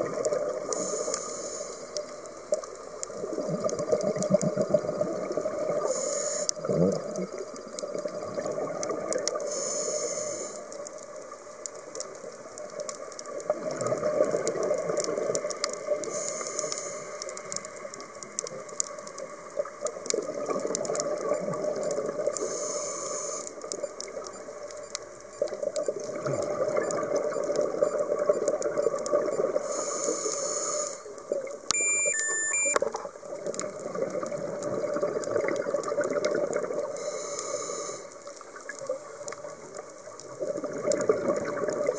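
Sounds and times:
hiss of inhalation: 0:00.8 - 0:02.0, 0:05.8 - 0:06.5, 0:09.4 - 0:10.7, 0:16.1 - 0:17.4, 0:22.4 - 0:23.6, 0:29.6 - 0:31.1, 0:37.0 - 0:38.2
electronic stepped beep: 0:31.7 - 0:32.8.

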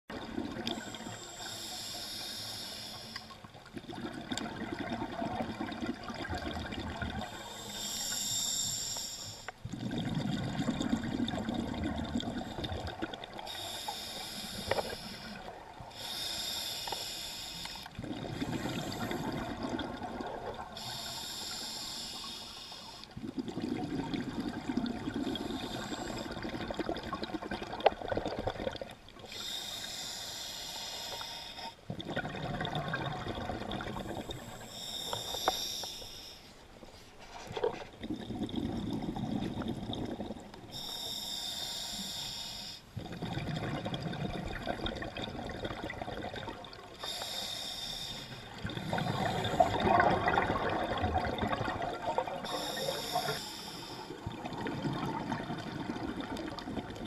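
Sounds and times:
underwater bubbling: 0:00.0 - 0:57.0
regulator air hiss: 0:00.9 - 0:03.4, 0:07.4 - 0:09.5, 0:13.5 - 0:17.9, 0:20.8 - 0:23.0, 0:29.3 - 0:31.8, 0:34.3 - 0:36.6, 0:40.7 - 0:42.9, 0:47.0 - 0:49.7, 0:52.4 - 0:54.2.

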